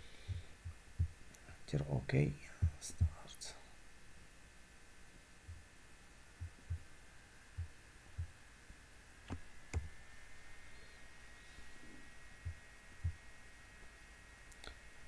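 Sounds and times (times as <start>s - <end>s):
soft low thumps: 0.2s - 1.2s, 2.5s - 3.3s, 5.4s - 5.7s, 6.4s - 8.4s, 9.3s - 10.0s, 12.4s - 13.2s.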